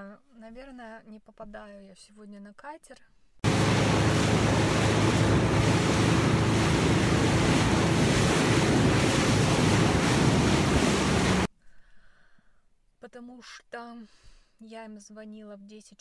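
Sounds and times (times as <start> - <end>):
low engine hum: 3.4 - 11.5
rushing water: 3.4 - 11.5
wind buffeting microphone: 3.4 - 11.5.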